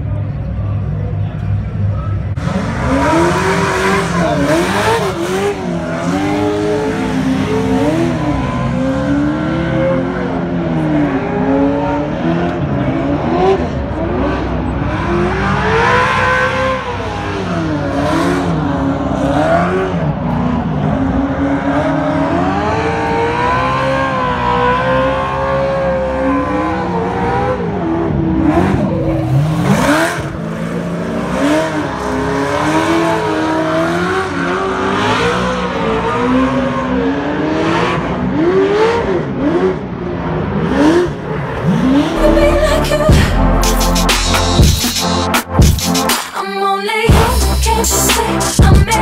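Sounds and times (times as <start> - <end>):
truck engine revving: 2.4 - 21.2, 40.6 - 46.3.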